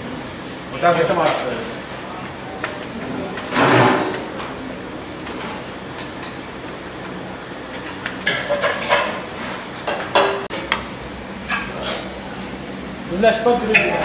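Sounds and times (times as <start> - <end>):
dishes and platters clinking: 3.1 - 4.6, 5.2 - 6.6, 7.8 - 10.6, 11.4 - 12.1, 13.6 - 14.0.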